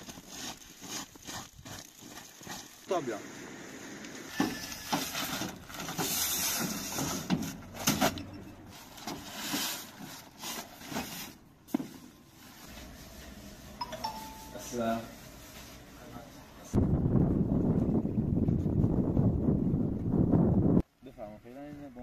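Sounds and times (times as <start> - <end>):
rustling: 4.3 - 16.5.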